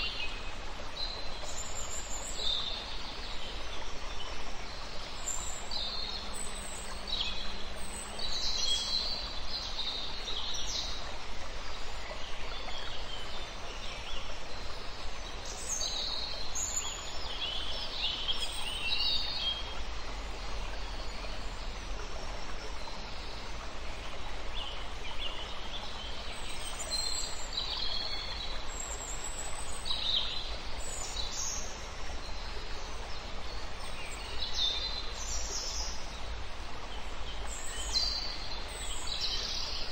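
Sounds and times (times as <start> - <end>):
outdoor background hiss: 0.0 - 39.9.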